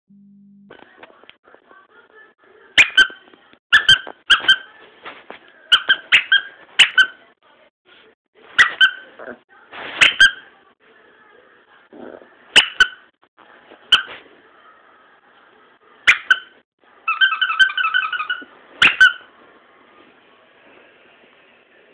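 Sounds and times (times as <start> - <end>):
puppy yipping barks: 2.8 - 4.7, 5.7 - 7.2, 8.6 - 9.1, 10.0 - 10.4, 12.5 - 13.1, 13.9 - 14.2, 16.0 - 19.3.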